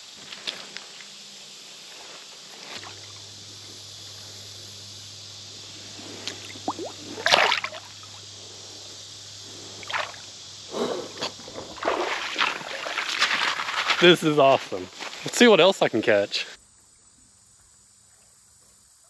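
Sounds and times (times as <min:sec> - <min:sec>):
stream running: 0:02.4 - 0:16.5
water splashing and dripping: 0:06.2 - 0:08.2, 0:09.8 - 0:10.3, 0:11.5 - 0:14.2.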